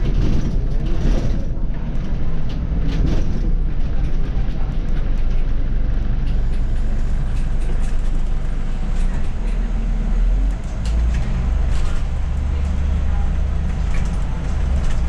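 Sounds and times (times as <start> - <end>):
bus engine rumble: 0.0 - 15.0
cab clicks and rattles: 6.3 - 15.0.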